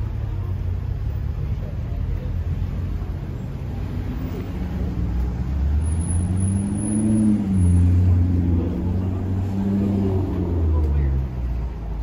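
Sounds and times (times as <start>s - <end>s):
car engine passing: 2.6s - 12.0s.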